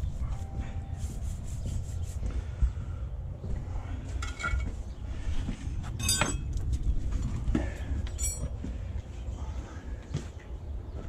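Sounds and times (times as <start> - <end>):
steady low rumble: 0.0 - 11.0
stone tools scraping: 6.0 - 6.4, 8.2 - 8.5
ringing clinks of stone tools: 6.0 - 6.5, 8.2 - 8.5.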